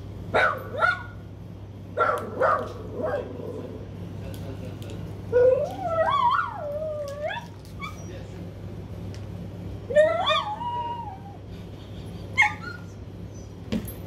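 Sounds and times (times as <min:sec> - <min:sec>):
dog whining and howling: 0:05.3 - 0:08.3, 0:09.9 - 0:11.5, 0:12.3 - 0:13.6.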